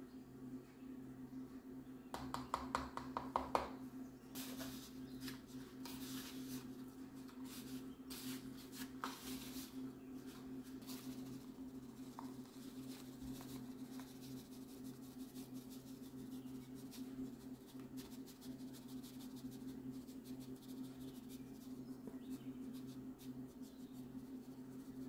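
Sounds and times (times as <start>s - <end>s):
steady low hum: 0.0s - 25.0s
spoon tapping plastic bowl: 2.2s - 3.7s.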